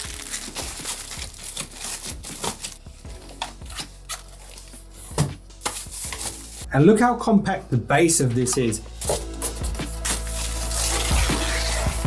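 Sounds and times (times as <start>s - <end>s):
plastic bag rustling: 0.0s - 4.9s
faint background music: 0.0s - 12.0s.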